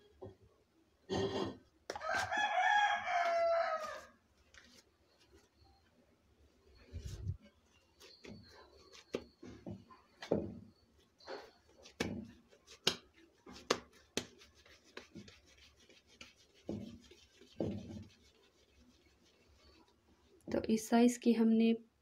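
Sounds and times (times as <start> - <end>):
soft slaps of dough handling: 11.8 - 15.3.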